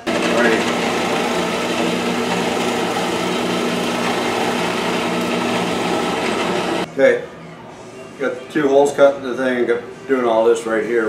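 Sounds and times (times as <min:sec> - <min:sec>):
bit cutting through plywood: 0:00.0 - 0:06.9
drill press motor hum: 0:00.0 - 0:06.9.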